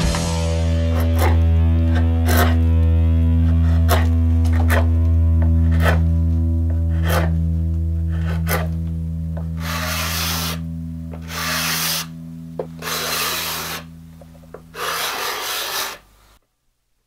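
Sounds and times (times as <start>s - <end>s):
background music with bass: 0.0s - 15.0s
hand tool rubbing on wood: 0.8s - 2.7s, 3.4s - 7.4s, 8.0s - 8.8s, 9.4s - 16.1s.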